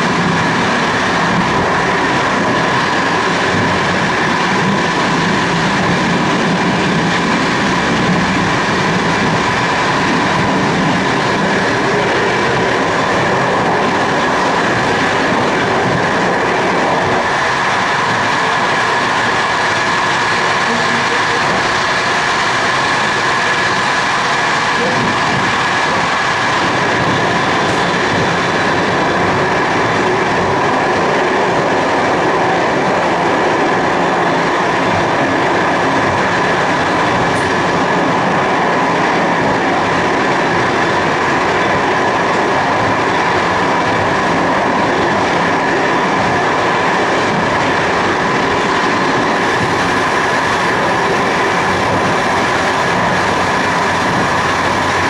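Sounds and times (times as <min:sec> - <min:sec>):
steady whine: 0:00.0 - 0:55.0
train wheels rumbling on rails: 0:00.0 - 0:55.0.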